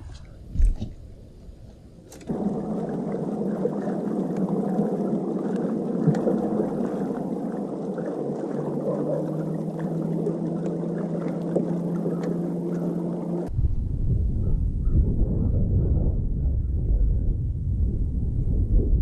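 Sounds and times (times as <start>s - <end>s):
low steady hum: 0.0s - 19.0s
water sloshing around boat hull: 2.1s - 13.5s.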